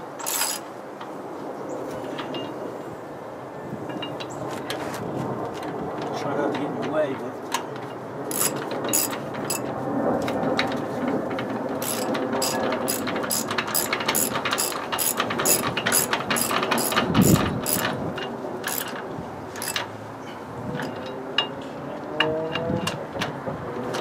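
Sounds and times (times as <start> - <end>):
ratchet wrench clicking: 0.2 - 0.6, 8.3 - 9.6, 11.8 - 17.9, 18.6 - 19.0, 19.6 - 19.9.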